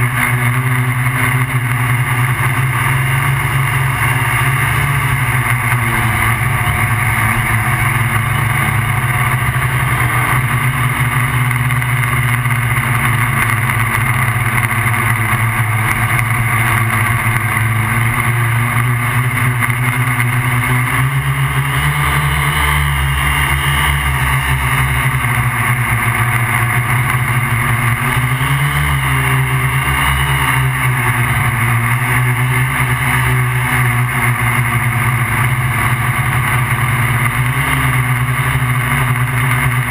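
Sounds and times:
drone propellers buzzing: 0.0s - 39.9s.

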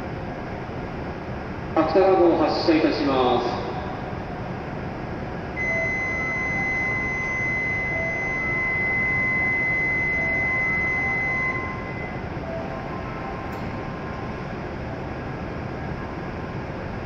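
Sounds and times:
standing train hum: 0.0s - 17.0s
high electronic warning tone: 5.6s - 15.6s.

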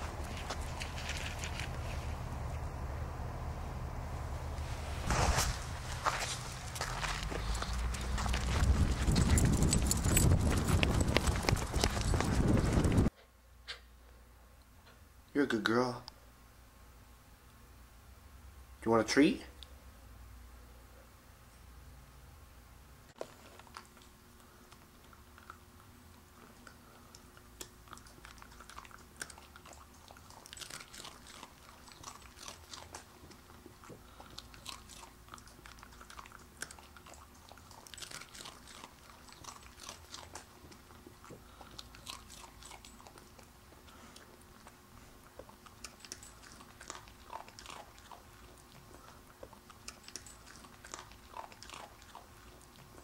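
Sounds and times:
dog crunching a treat: 0.0s - 2.6s, 5.9s - 13.1s, 23.2s - 53.0s.

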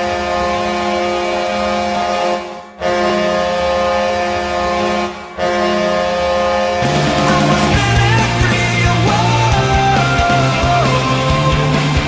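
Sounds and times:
goal horn blasting: 0.0s - 7.7s.

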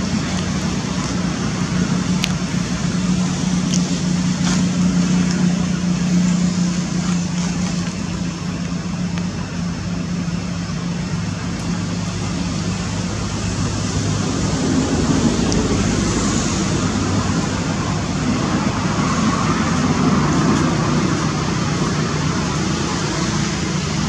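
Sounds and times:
road traffic noise: 0.0s - 24.0s
vehicle engine humming: 0.0s - 24.0s.

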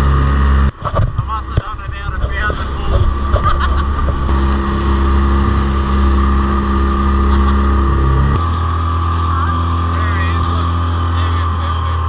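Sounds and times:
outboard motor droning: 0.0s - 12.0s
water and wind noise: 0.0s - 12.0s.

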